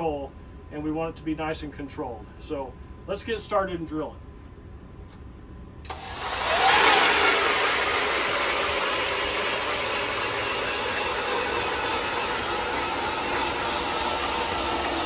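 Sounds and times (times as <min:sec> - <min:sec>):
auger drilling through ice: 0:05.9 - 0:15.0
ice auger motor whining: 0:05.9 - 0:15.0.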